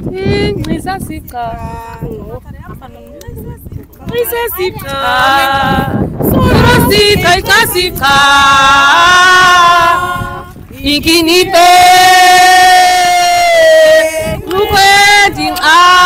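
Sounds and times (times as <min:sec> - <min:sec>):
voices singing a chant: 0:04.0 - 0:16.0.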